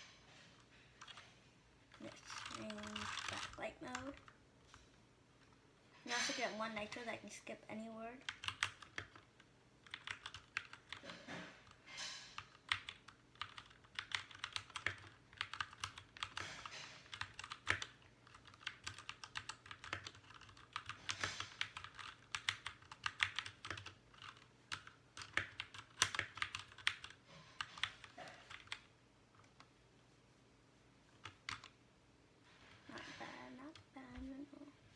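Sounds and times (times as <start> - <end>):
fast mechanical keyboard typing: 2.0 - 4.4, 8.2 - 11.8, 12.4 - 28.9, 31.2 - 31.7.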